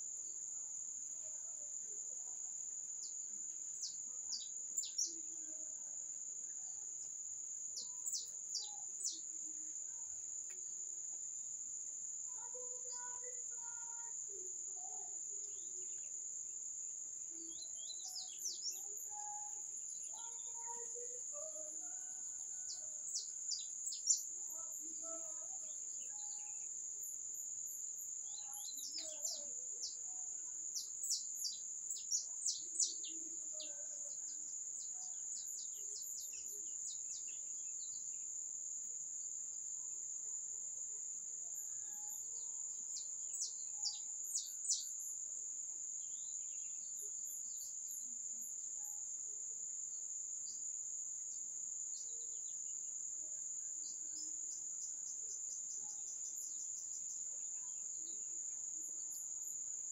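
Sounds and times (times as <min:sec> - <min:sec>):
high-pitched insect drone: 0:03.0 - 0:05.8, 0:07.7 - 0:10.6, 0:12.2 - 0:16.2, 0:17.3 - 0:38.2, 0:38.8 - 0:59.9.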